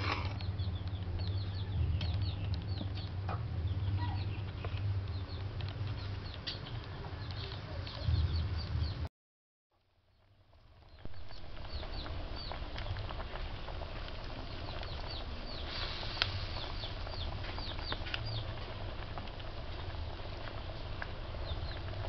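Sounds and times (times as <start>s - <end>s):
soup boiling hard: 0.0s - 1.2s, 10.4s - 22.0s
birds chirping: 0.0s - 9.1s, 10.9s - 13.4s, 14.2s - 18.6s, 21.3s - 22.0s
wood fire crackling: 0.0s - 9.1s, 9.8s - 22.0s.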